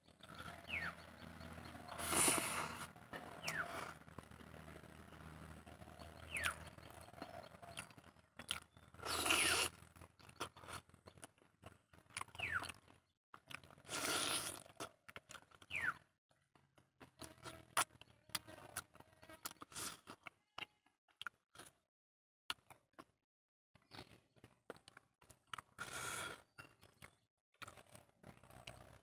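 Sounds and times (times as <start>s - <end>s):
chewing and lip-smacking: 0.2s - 16.0s, 16.8s - 21.8s, 23.8s - 29.0s
bird whistling: 0.6s - 1.0s, 3.4s - 3.7s, 6.2s - 7.1s
fingers working food: 1.4s - 20.8s.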